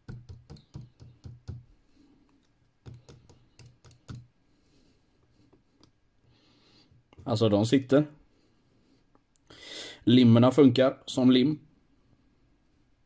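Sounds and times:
plastic strips clicking and tapping: 0:00.0 - 0:01.7, 0:02.4 - 0:04.3.

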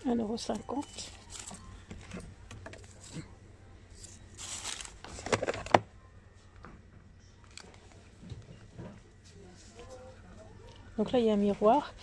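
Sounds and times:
packaging rustling: 0:04.0 - 0:05.8.

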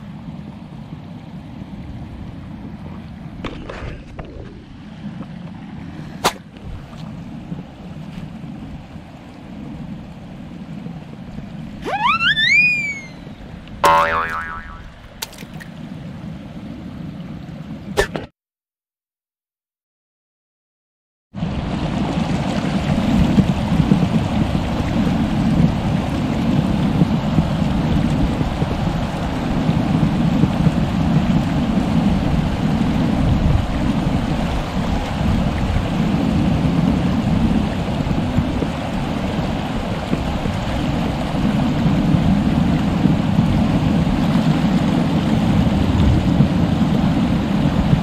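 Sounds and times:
stream water rushing: 0:04.7 - 0:18.2.

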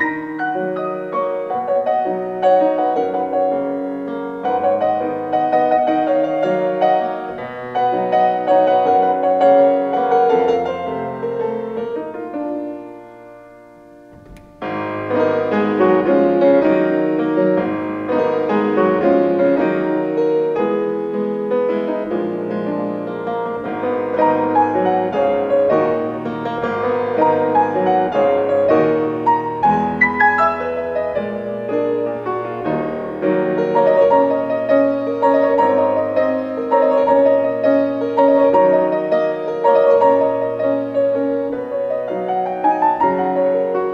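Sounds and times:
grand piano melody with chords: 0:00.0 - 0:43.9.

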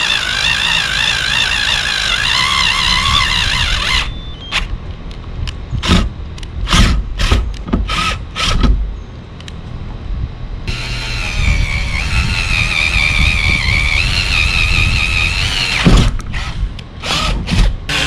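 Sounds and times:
cordless drill whine: 0:00.0 - 0:04.7, 0:10.7 - 0:18.0.

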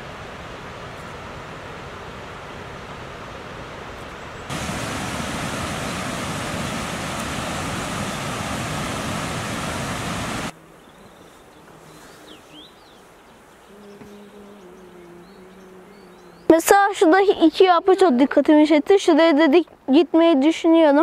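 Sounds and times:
waterfall rushing water: 0:00.0 - 0:10.6.

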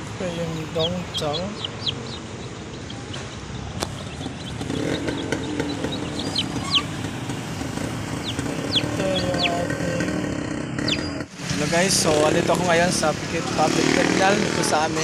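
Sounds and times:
low engine hum: 0:00.0 - 0:11.3
chicks peeping: 0:00.3 - 0:11.3.

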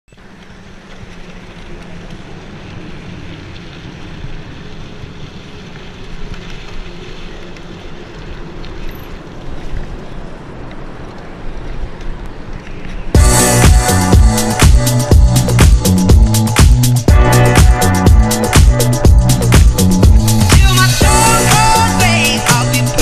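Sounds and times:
faint clicks: 0:00.1 - 0:13.2
bike tyres rolling over gravel: 0:00.1 - 0:23.0.

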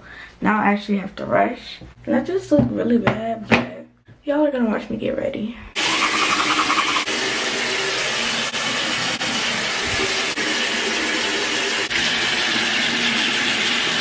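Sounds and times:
tap water pouring into basin: 0:05.8 - 0:14.0.

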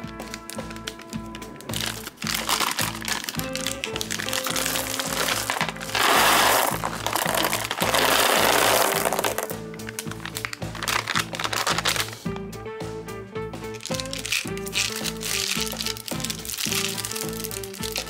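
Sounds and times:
candies rattling into box: 0:00.0 - 0:12.2, 0:13.8 - 0:18.0
plastic bag crinkling: 0:00.0 - 0:12.2, 0:13.8 - 0:18.0
rhythmic background music: 0:00.0 - 0:18.0.

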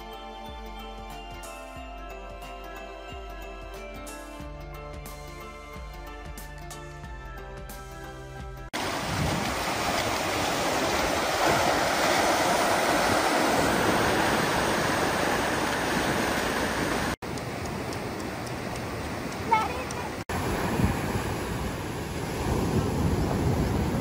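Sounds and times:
ocean surf breaking: 0:08.8 - 0:24.0.

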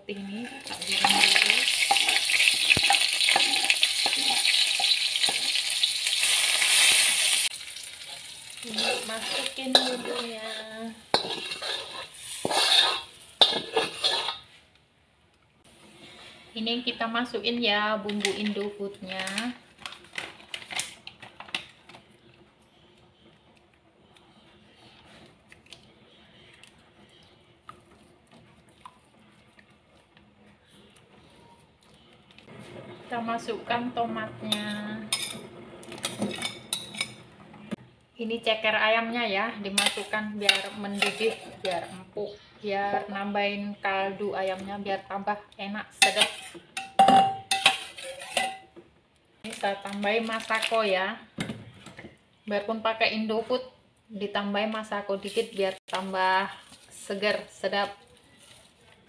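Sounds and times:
metal spatula scraping wok: 0:00.1 - 0:14.6, 0:32.4 - 0:37.8, 0:39.7 - 0:43.0, 0:46.0 - 0:48.6, 0:55.1 - 0:57.3
spice paste sizzling in oil: 0:00.4 - 0:14.5.

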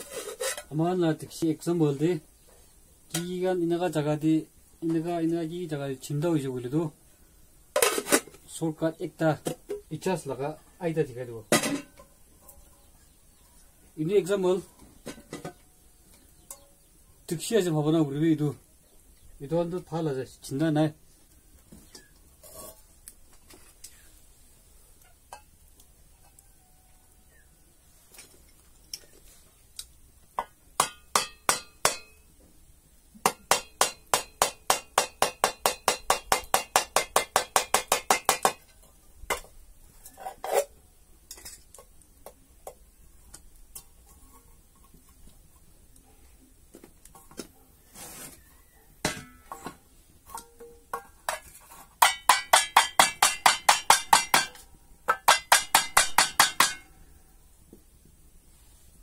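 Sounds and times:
metallic taps on tin can: 0:33.3 - 0:39.5, 0:49.1 - 0:56.9.

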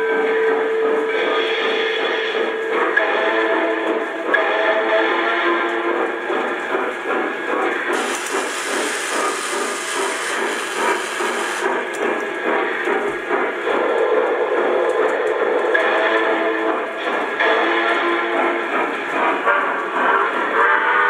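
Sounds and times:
model water tower pump running: 0:07.9 - 0:11.8
steady hiss: 0:07.9 - 0:11.8.

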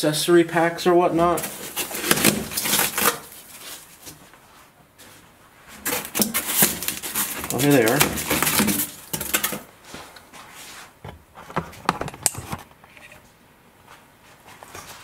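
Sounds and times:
foam blocks scraping and crunching: 0:01.2 - 0:04.2, 0:05.6 - 0:11.0.

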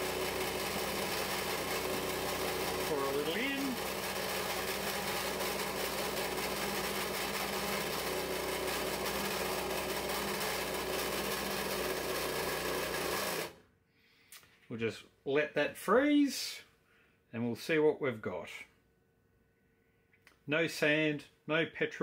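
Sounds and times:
handheld vibrator running: 0:00.0 - 0:13.6.

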